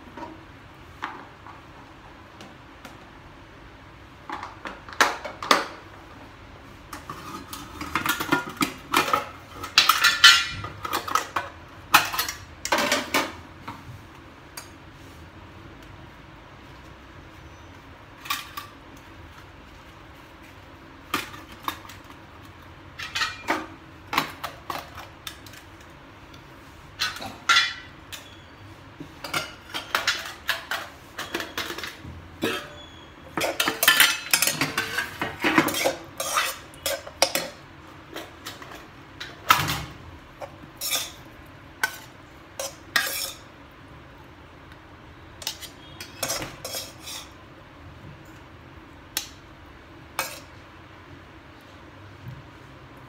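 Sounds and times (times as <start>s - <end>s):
utensils and dishes clattering: 6.9s - 13.5s, 18.2s - 18.8s, 21.1s - 25.9s, 26.9s - 43.6s, 45.4s - 47.4s, 50.1s - 50.6s.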